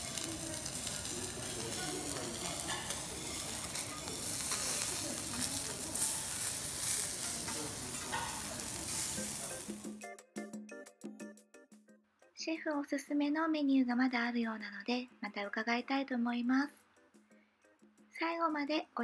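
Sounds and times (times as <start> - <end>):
food sizzling on a griddle: 0.0 - 10.0
light music: 0.0 - 19.0.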